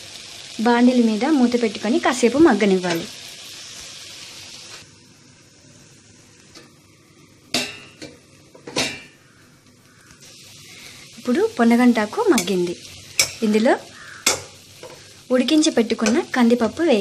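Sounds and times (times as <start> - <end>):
greens sizzling in a frying pan: 0.0 - 17.0.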